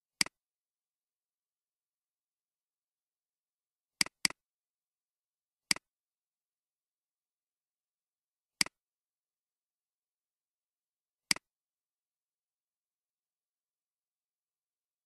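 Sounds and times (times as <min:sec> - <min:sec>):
computer mouse clicks: 0:04.0 - 0:04.4.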